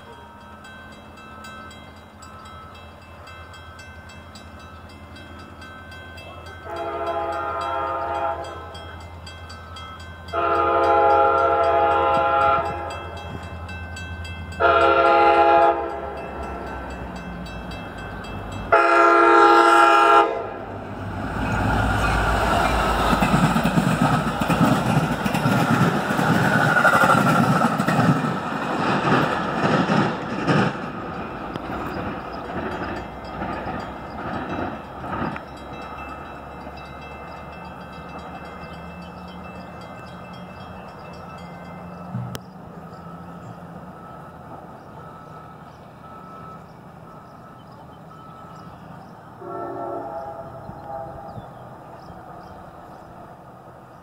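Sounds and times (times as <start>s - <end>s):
crossing bell ringing: 0.0s - 28.1s, 30.1s - 51.4s
train passing with wheel clatter: 0.0s - 54.0s
train horn blasts: 6.6s - 8.9s, 10.3s - 13.2s, 14.5s - 16.4s, 18.7s - 20.8s, 49.3s - 51.7s.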